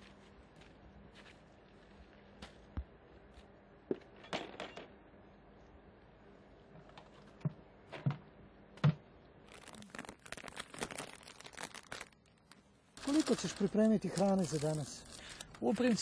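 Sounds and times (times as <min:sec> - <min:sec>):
plastic bag crinkling: 0:09.4 - 0:16.0.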